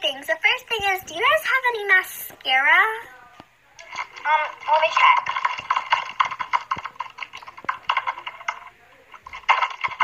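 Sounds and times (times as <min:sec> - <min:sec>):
keyboard typing: 0:03.8 - 0:10.0.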